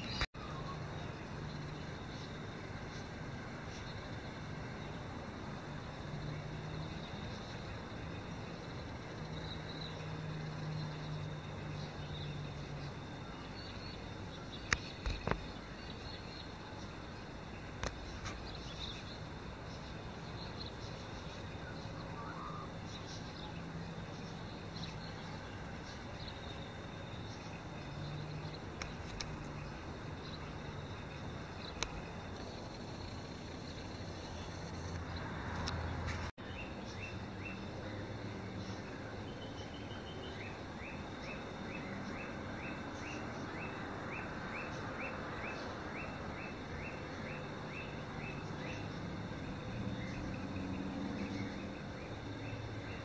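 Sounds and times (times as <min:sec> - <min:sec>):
distant vehicle engine hum: 0:00.0 - 0:53.0.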